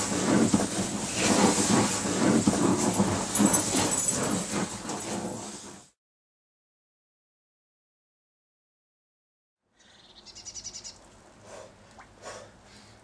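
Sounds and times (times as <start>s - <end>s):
flame hissing and crackling: 0.0s - 6.0s.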